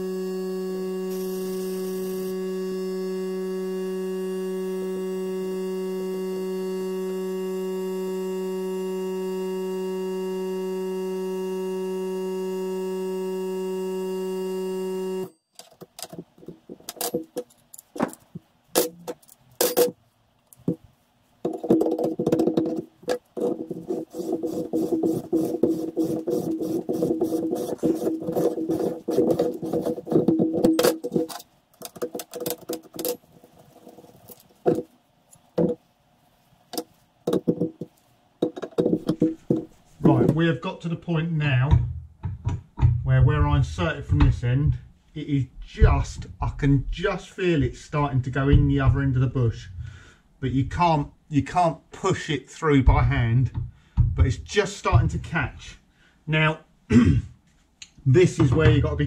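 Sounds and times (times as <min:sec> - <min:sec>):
steady electronic tone: 0:00.0 - 0:15.4.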